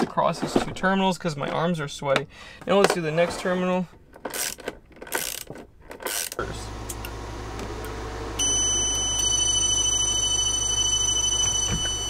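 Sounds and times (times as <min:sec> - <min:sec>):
inverter humming: 0:06.4 - 0:12.0
high-pitched beep: 0:08.4 - 0:12.0.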